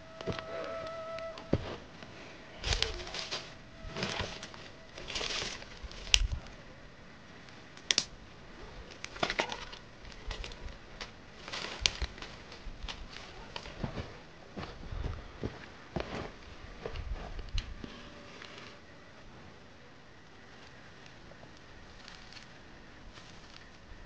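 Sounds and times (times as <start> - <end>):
dry leaves and twigs crunching: 0.0 - 6.6, 8.8 - 18.6, 20.2 - 24.0
twigs snapping: 0.2 - 6.5, 7.4 - 8.2, 8.9 - 13.8, 20.6 - 22.5.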